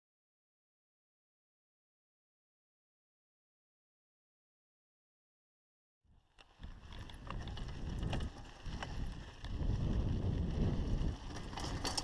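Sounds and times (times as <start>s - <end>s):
bike clicks and rattles: 6.2s - 12.0s
wind buffeting microphone: 6.4s - 12.0s.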